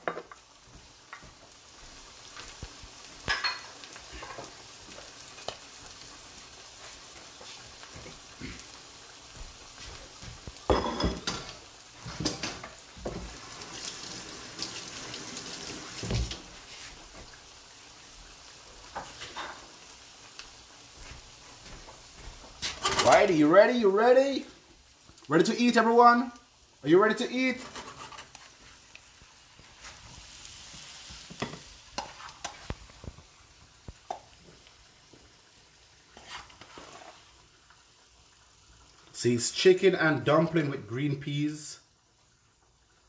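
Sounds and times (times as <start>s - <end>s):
food sizzling in pans: 0.0s - 43.0s
dishes and utensils clattering: 3.3s - 4.5s, 10.7s - 11.5s, 22.7s - 23.2s.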